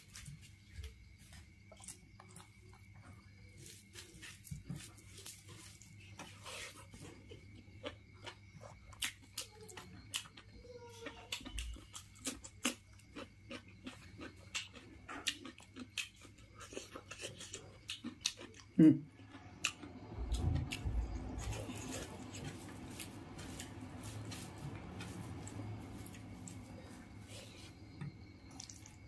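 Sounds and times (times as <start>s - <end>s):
chewing and lip smacks: 28.5s - 29.0s.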